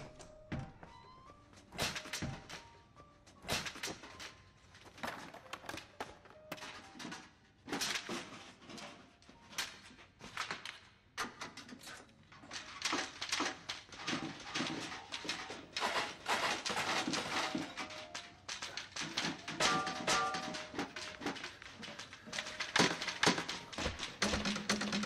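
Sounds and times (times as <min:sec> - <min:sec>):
cleaning gear knocking and clattering: 0:12.5 - 0:25.0.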